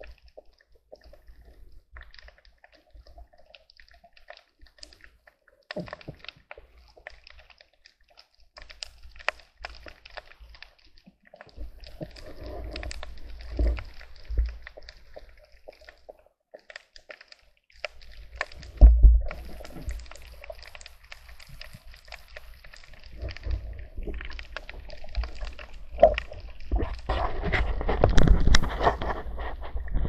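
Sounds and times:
underwater clicks and crackles: 0.0 - 30.0
low underwater rumbling: 11.5 - 15.9, 18.4 - 30.0.

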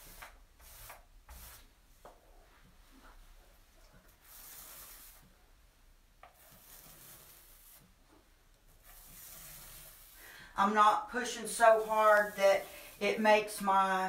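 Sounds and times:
paint roller rasping on countertop: 0.0 - 1.8, 4.0 - 5.4, 6.2 - 13.8.

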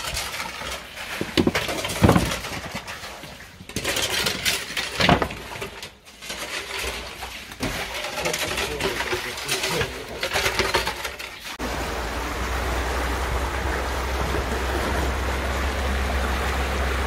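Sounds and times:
shovels scraping wet sludge: 0.0 - 11.6
muck splashing and slapping: 6.3 - 11.6.

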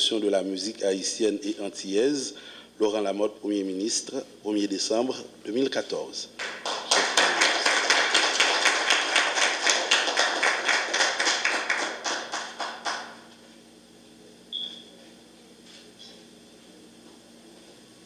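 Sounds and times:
audience applause: 6.4 - 13.2.

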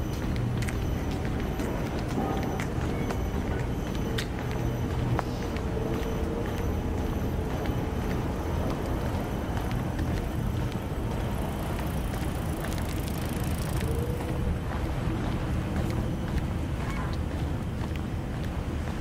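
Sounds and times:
faint ticks: 3.0 - 14.9.

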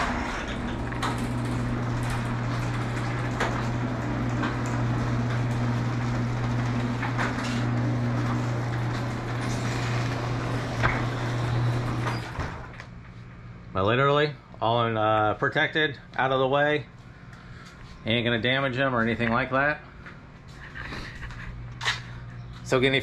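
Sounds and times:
garage door clicks and rattles: 0.0 - 12.8
garage door opener motor hum: 0.0 - 13.6.

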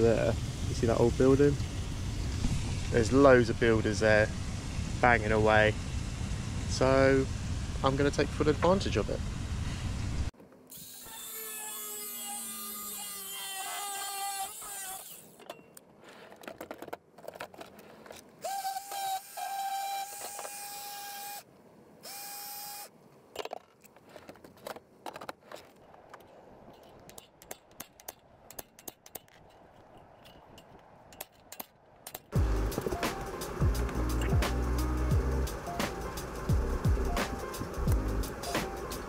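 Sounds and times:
small sander running: 10.7 - 15.3, 18.4 - 21.4
angle grinder cutting metal: 10.7 - 15.4, 18.4 - 21.4
metal tools clinking: 23.4 - 32.4.

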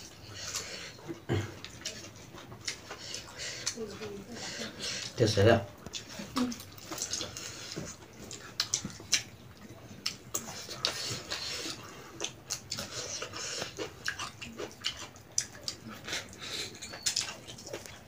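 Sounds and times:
wet chewing and lip smacking: 0.0 - 5.2, 5.8 - 18.0.

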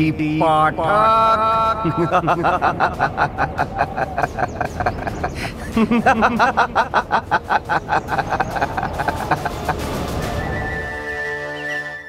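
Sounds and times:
man laughing loudly: 0.8 - 10.2.

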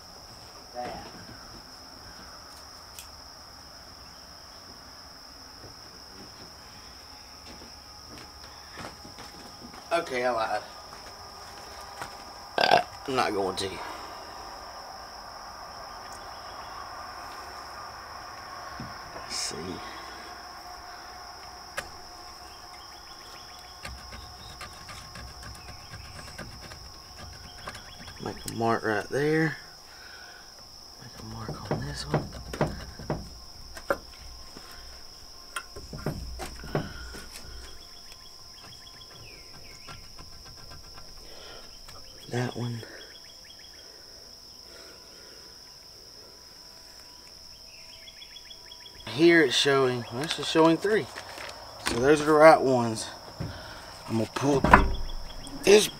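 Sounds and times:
insects trilling: 0.0 - 55.9.

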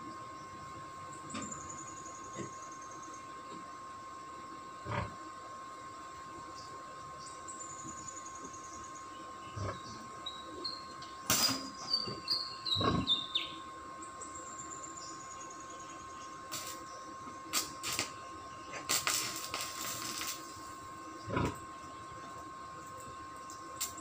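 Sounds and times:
bird singing: 0.2 - 3.6, 6.5 - 17.4, 18.2 - 18.9
arc welding crackle: 11.2 - 11.9, 16.1 - 24.0.

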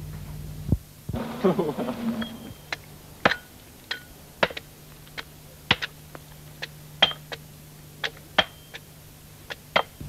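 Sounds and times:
metallic ring: 8.4 - 8.8.

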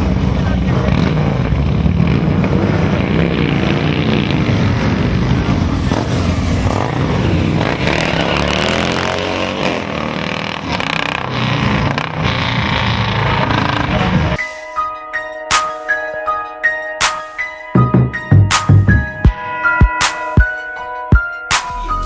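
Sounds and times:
motorcycles riding by: 0.0 - 14.4.

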